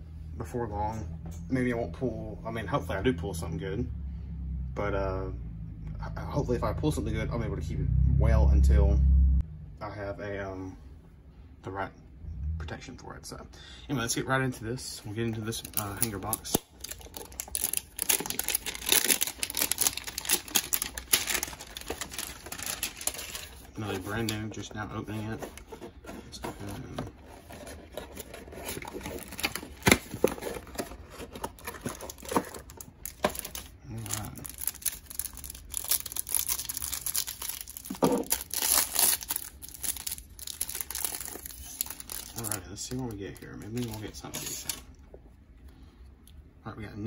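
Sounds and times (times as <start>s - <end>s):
plastic shrink wrap crinkling: 15.4s - 44.9s.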